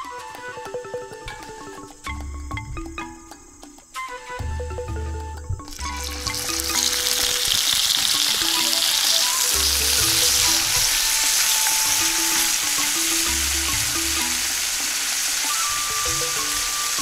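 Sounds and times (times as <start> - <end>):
meat sizzling in hot oil: 5.7 - 17.0.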